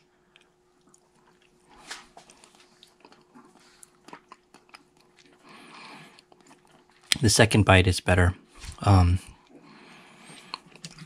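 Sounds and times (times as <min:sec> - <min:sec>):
wet chewing and mouth noises: 0:00.0 - 0:07.2, 0:09.4 - 0:11.0.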